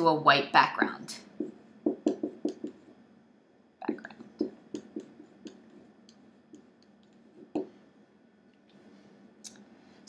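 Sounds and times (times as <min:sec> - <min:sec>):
marker squeaking on whiteboard: 0:01.4 - 0:02.9, 0:03.9 - 0:07.7.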